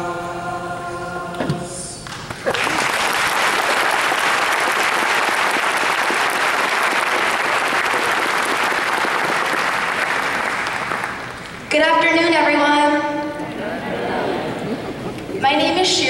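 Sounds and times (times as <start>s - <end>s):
crowd applauding: 2.0s - 11.7s.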